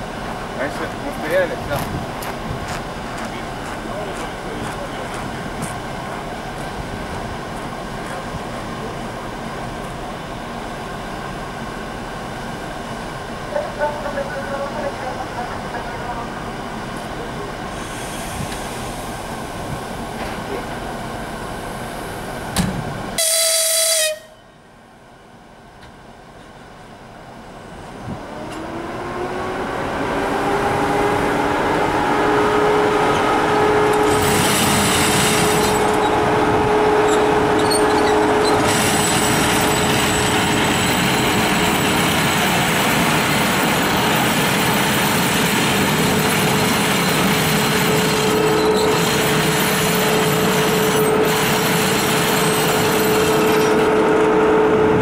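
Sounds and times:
locomotive running whine and hum: 0:00.0 - 0:55.0
locomotive horn blast: 0:23.2 - 0:24.5, 0:31.8 - 0:34.4, 0:35.3 - 0:38.9, 0:53.3 - 0:55.0.

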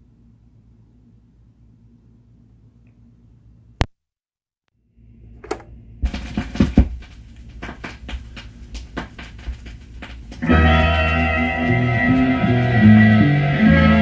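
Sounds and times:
vinyl record crackles and pops: 0:06.0 - 0:14.0.

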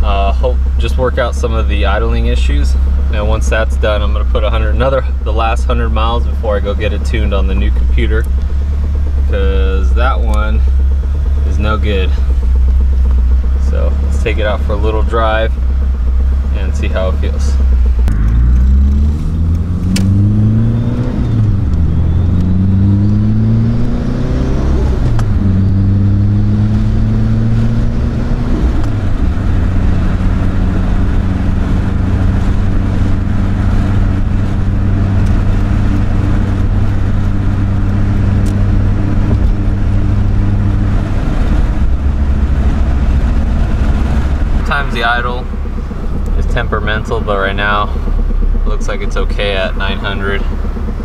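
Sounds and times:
car engine accelerating through gears: 0:00.0 - 0:51.0.

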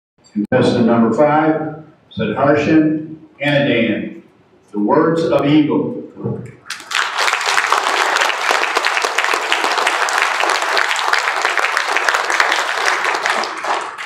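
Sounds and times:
audience applauding: 0:06.6 - 0:14.0.

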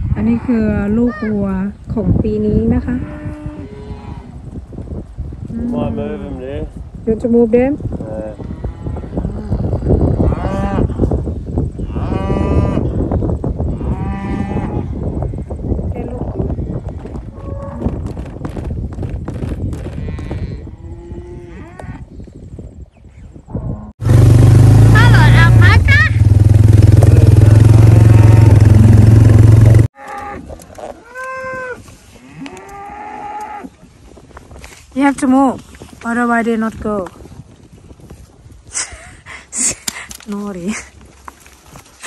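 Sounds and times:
cow mooing: 0:08.2 - 0:11.0, 0:11.8 - 0:13.0, 0:27.1 - 0:29.3, 0:29.9 - 0:33.7
small engine running: 0:24.0 - 0:29.9
cattle mooing: 0:27.1 - 0:29.0.

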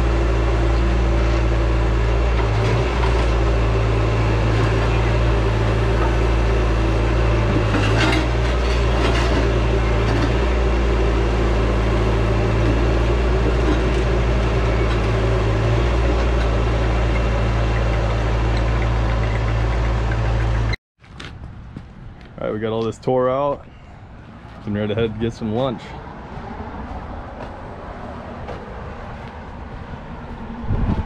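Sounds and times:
diesel engine running under load: 0:00.0 - 0:20.8.

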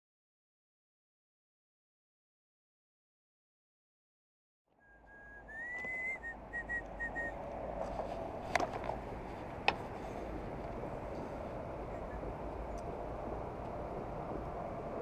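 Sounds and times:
outdoor background noise: 0:04.7 - 0:15.0
high whistle: 0:04.8 - 0:07.4.

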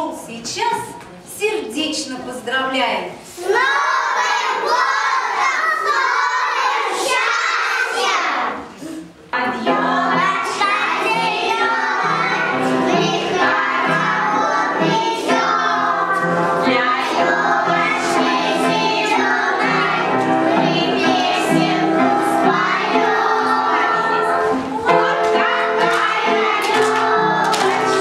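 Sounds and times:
children singing together: 0:03.4 - 0:28.0
music accompaniment: 0:09.4 - 0:28.0.

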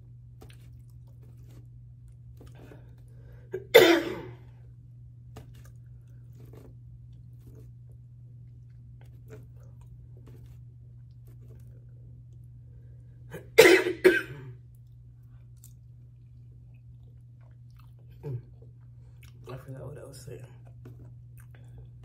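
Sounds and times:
quiet chewing: 0:00.2 - 0:03.4, 0:05.3 - 0:13.1, 0:14.6 - 0:19.8, 0:20.4 - 0:22.0
woman coughing: 0:03.5 - 0:04.4, 0:13.3 - 0:14.6.

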